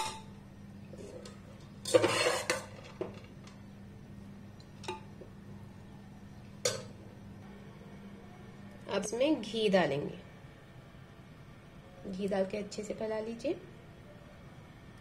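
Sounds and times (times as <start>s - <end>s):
metal spoon scraping pot: 1.0s - 2.8s.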